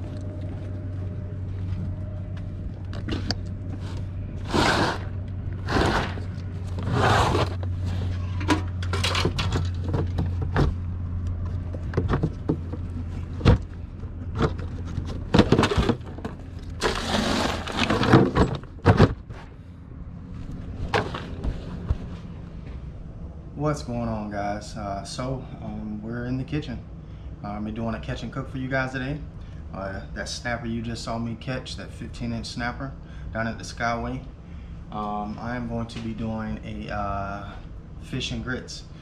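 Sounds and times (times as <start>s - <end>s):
steady low hum: 0.0s - 39.0s
plastic cooler lid scrapes and knocks: 4.4s - 7.6s, 16.8s - 19.2s.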